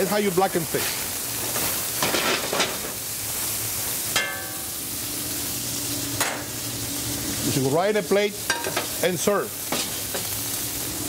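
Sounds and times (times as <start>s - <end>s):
fish sizzling in a pan: 0.0s - 11.0s.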